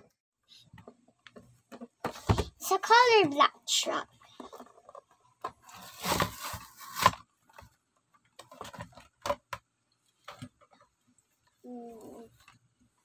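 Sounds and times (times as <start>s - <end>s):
cardboard tearing and crinkling: 5.7s - 7.3s.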